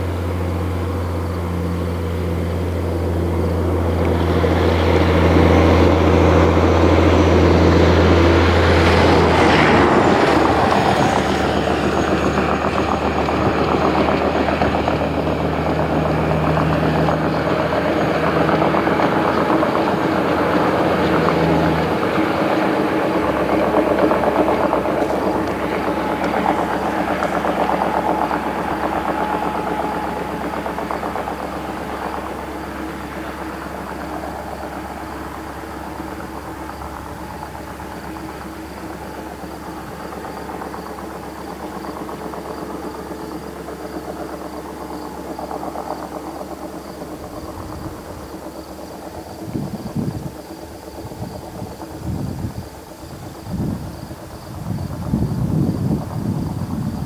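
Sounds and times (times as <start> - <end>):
mechanical rumble with hum: 0.0 - 41.9
insects chirping: 0.0 - 57.0.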